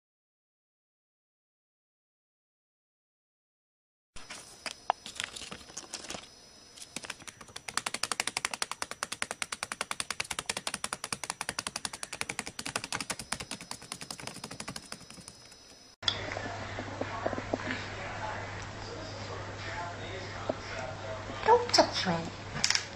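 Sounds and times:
bird beak tapping on paper: 4.6 - 15.7.

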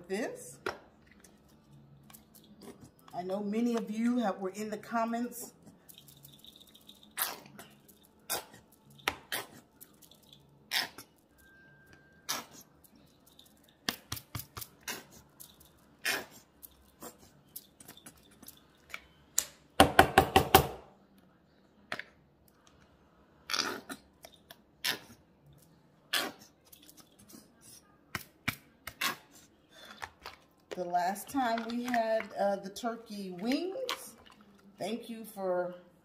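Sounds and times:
squeeze bottle squirting: 6.2 - 11.1
plastic clicks and splats: 29.9 - 32.4.

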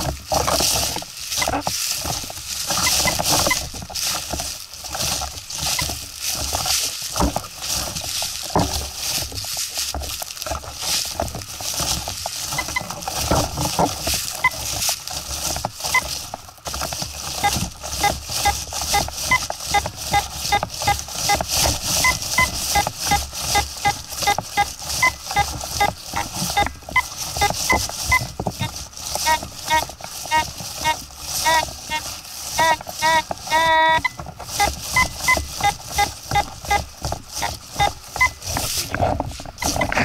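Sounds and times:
footsteps on dry leaves: 0.0 - 40.0
metal detector coil sweeping leaves: 0.0 - 40.0
short high beeps: 22.0 - 25.9, 29.2 - 32.0, 32.6 - 36.8, 37.4 - 38.4.

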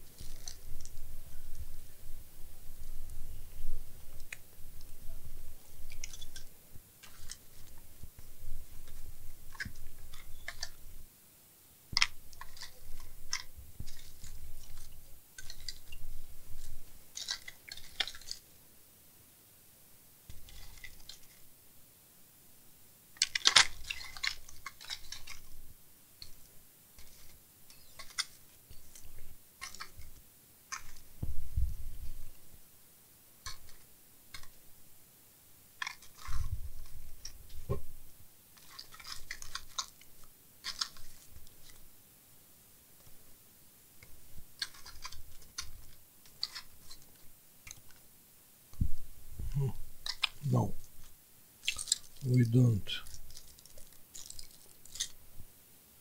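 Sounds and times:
packaging crinkling rustles: 0.0 - 1.7, 12.0 - 18.4, 20.3 - 21.5, 23.2 - 25.6, 38.6 - 41.9, 44.5 - 48.0, 50.0 - 55.2
sharp clicks of small parts: 23.2 - 25.4, 27.0 - 30.1, 38.6 - 41.8.

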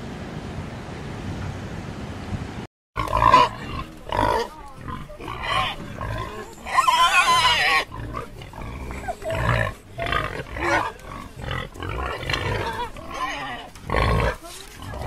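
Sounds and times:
warthogs calling: 3.0 - 15.0.

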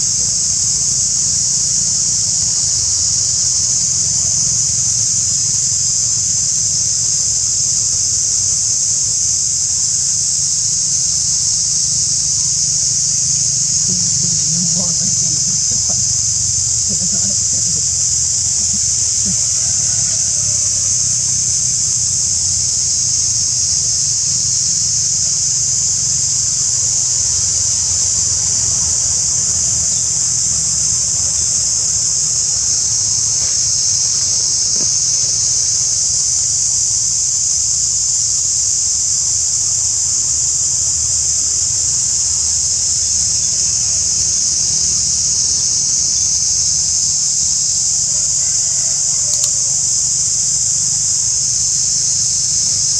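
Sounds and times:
insects shrill drone: 0.0 - 52.9
low rumble: 13.2 - 19.9.

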